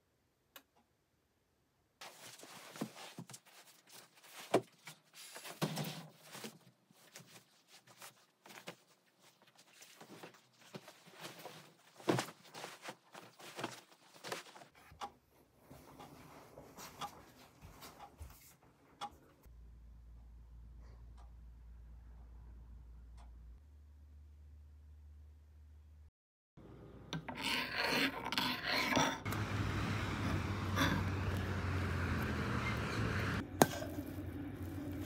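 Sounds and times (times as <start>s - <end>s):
fabric rustling: 2.0s - 14.8s.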